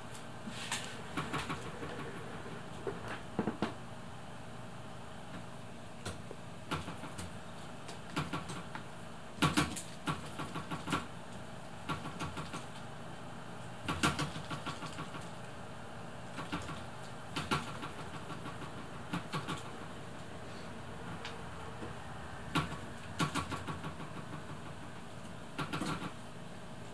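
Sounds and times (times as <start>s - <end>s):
low background hum: 0.0s - 26.9s.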